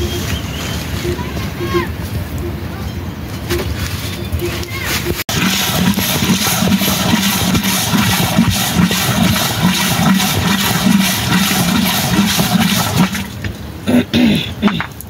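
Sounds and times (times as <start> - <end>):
water rushing: 5.0 - 15.0.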